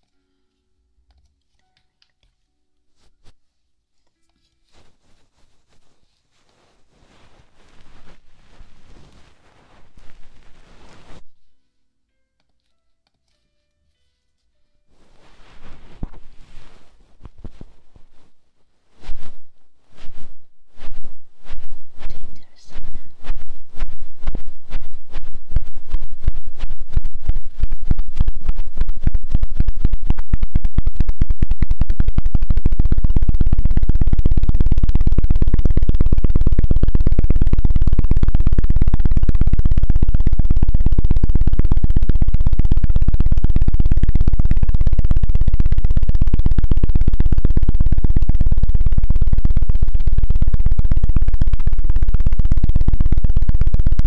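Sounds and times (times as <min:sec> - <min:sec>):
fast dull knocking: 0:22.8 - 0:54.0.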